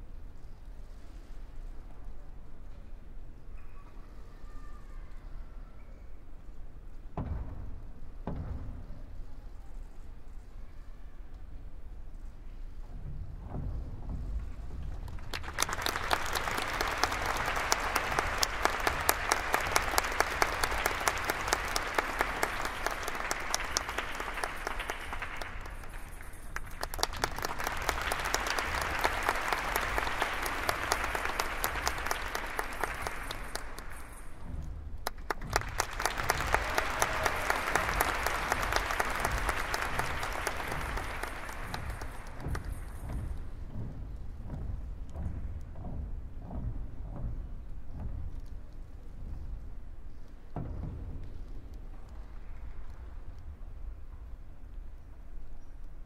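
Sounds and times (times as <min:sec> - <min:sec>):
audience clapping in rhythm: 0:15.0 - 0:43.6.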